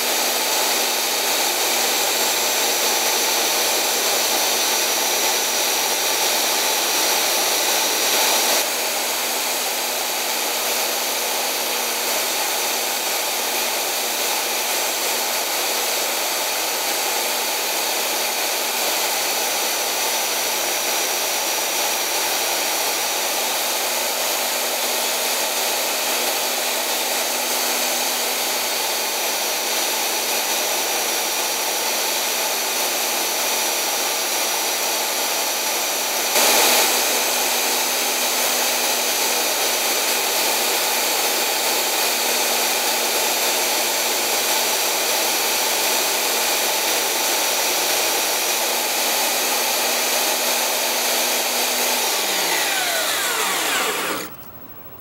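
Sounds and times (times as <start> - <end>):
belt sander motor hum: 48.6 - 55.0
chisel grinding on belt sander: 49.1 - 55.0.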